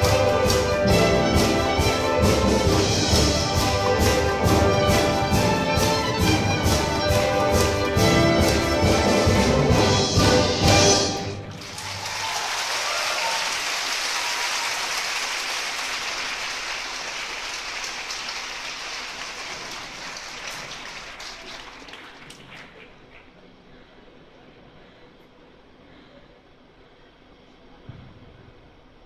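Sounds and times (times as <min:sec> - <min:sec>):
strings and orchestra playing folk tune: 0:00.0 - 0:11.5
audience applause: 0:00.0 - 0:23.4.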